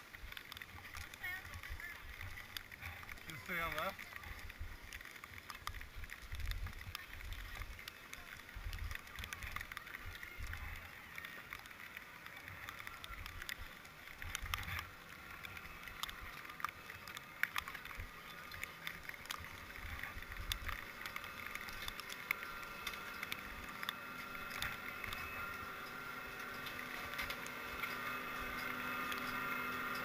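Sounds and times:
ski poles clicking: 0.0 - 30.0
skis scraping on snow: 0.0 - 30.0.

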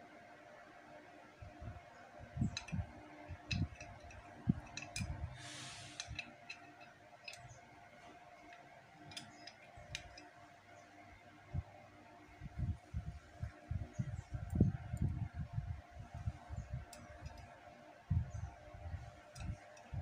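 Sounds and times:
small metal parts clinking: 2.5 - 7.6, 8.4 - 10.4.

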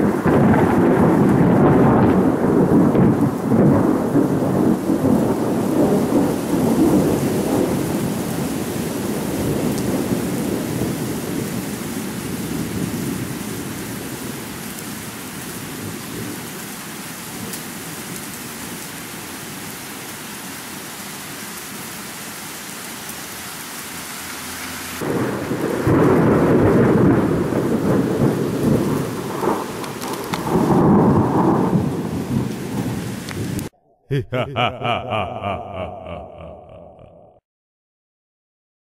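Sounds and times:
rolling thunder: 0.0 - 13.9, 25.0 - 33.7
steady rain: 0.0 - 33.7.

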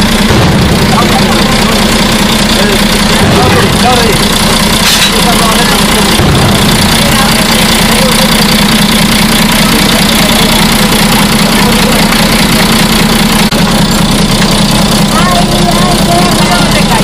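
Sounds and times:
vehicle engine idling: 0.0 - 17.0.

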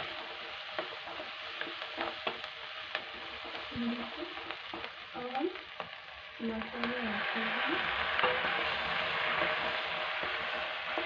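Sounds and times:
vegetables sizzling in hot oil: 0.0 - 11.0
spatula scraping a pan: 7.4 - 11.0.

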